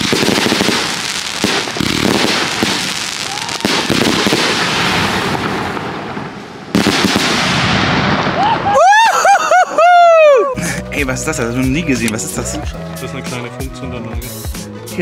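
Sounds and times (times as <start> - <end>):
fireworks crackling: 0.0 - 9.0
firework rising whistle: 3.0 - 4.1.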